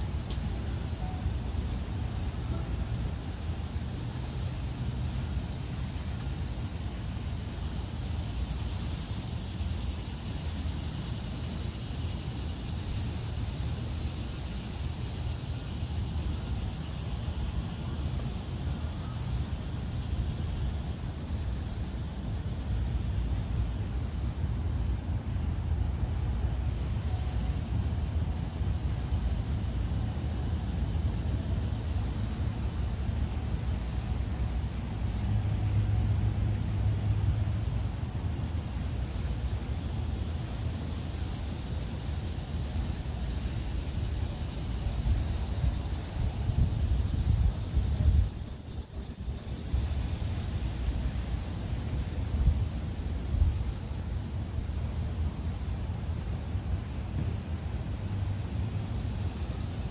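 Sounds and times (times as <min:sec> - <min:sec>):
distant road traffic rumble: 0:00.0 - 0:59.9.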